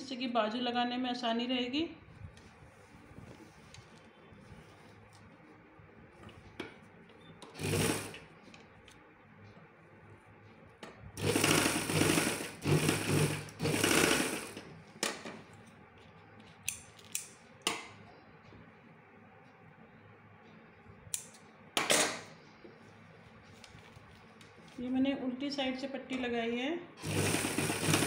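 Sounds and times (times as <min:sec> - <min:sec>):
sewing machine stitching: 0:07.5 - 0:08.2, 0:11.2 - 0:14.6, 0:27.0 - 0:28.0.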